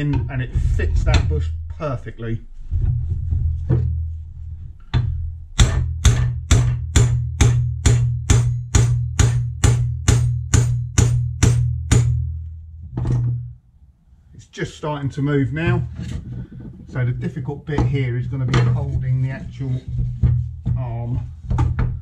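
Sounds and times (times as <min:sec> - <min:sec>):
steady low hum: 0:00.0 - 0:22.0
hammer striking steel drift: 0:05.0 - 0:12.4.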